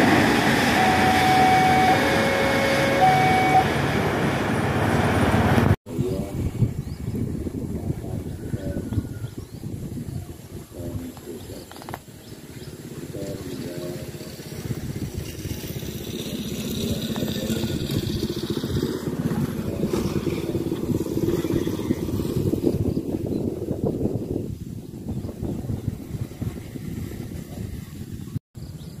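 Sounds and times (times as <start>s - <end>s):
motorcycle engine passing: 12.7s - 23.0s.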